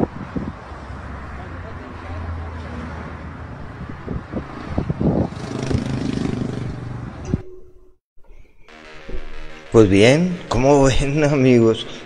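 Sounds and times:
road traffic from inside vehicle: 0:00.0 - 0:07.6.

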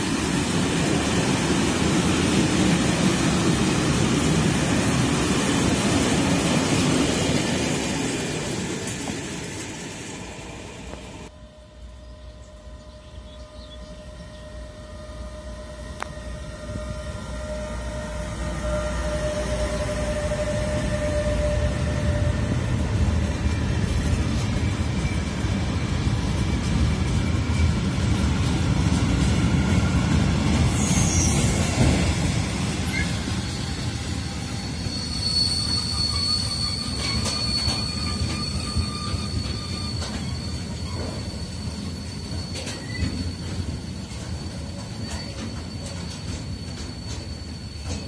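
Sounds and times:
freight train passing: 0:00.0 - 0:48.0
high-pitched wheel squeal: 0:13.9 - 0:22.6, 0:30.7 - 0:31.8, 0:32.6 - 0:48.0
wheels clattering on rails: 0:36.8 - 0:48.0.

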